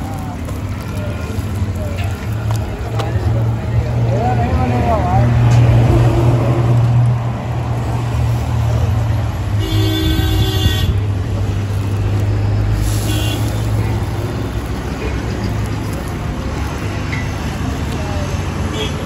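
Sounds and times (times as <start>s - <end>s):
street traffic hum: 0.0s - 19.0s
vehicle horn honking: 9.6s - 11.0s.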